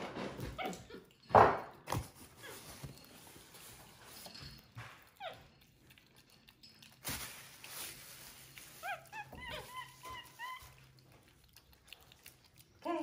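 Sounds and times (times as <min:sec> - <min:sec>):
monkey squeaky chirps: 0:08.8 - 0:10.8.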